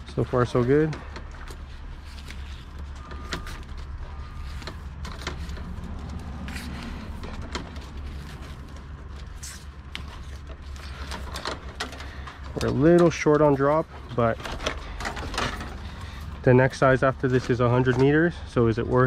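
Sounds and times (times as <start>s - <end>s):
cable handling clicks and scrapes: 0.0s - 19.0s.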